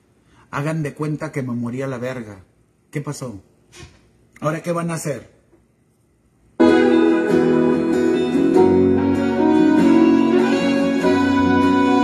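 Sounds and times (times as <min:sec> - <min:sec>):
violin-led instrumental music: 0:06.6 - 0:12.0.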